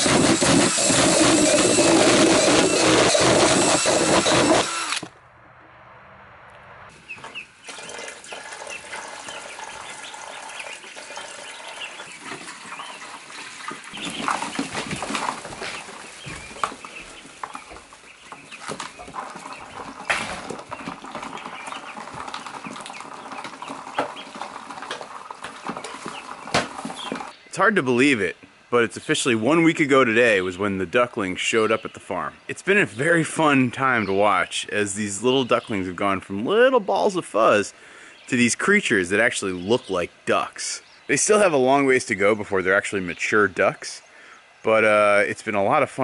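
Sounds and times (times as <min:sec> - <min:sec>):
power drill boring through plastic: 0:00.0 - 0:05.1
ducklings peeping: 0:07.0 - 0:27.4.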